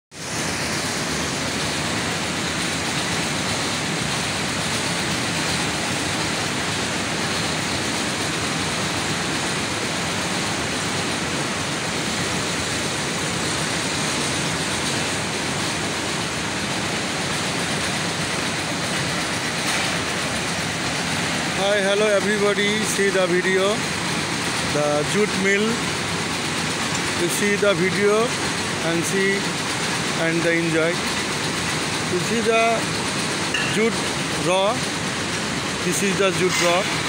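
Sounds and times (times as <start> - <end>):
mill machinery running: 0.2 - 37.0.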